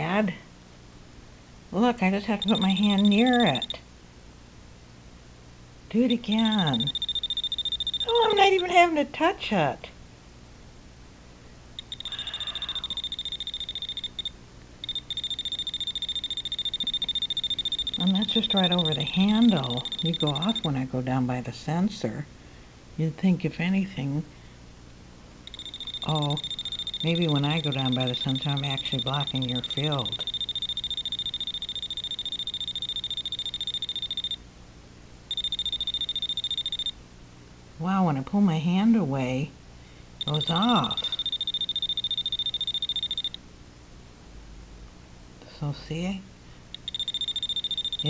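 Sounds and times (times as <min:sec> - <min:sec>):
voltage tester buzzer beeping: 0:02.3 - 0:03.8, 0:06.1 - 0:08.6, 0:11.8 - 0:20.8, 0:25.5 - 0:34.4, 0:35.3 - 0:37.0, 0:40.2 - 0:43.4, 0:46.8 - 0:48.0.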